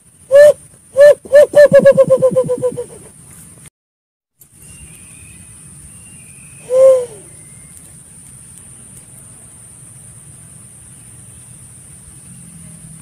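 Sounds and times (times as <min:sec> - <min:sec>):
dove low hoot: 0:00.3 - 0:03.2, 0:06.6 - 0:07.4.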